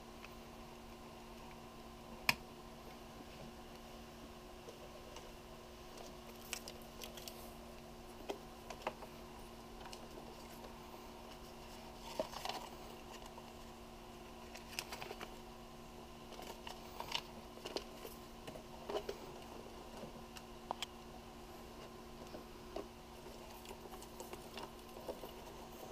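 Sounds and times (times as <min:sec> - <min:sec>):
steady low hum: 0:00.0 - 0:25.9
paper booklets shuffled: 0:11.3 - 0:13.4, 0:14.4 - 0:15.3.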